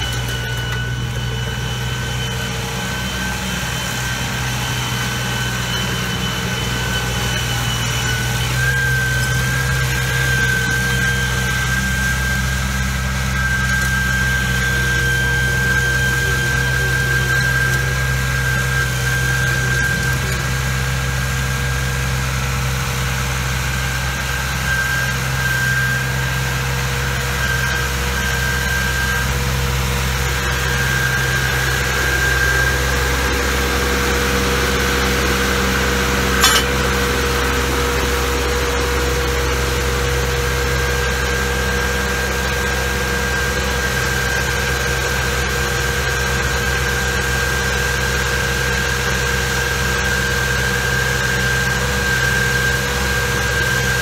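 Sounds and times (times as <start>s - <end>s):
high whine: 0.0s - 22.3s, 27.0s - 44.0s
trencher engine running: 0.0s - 54.0s.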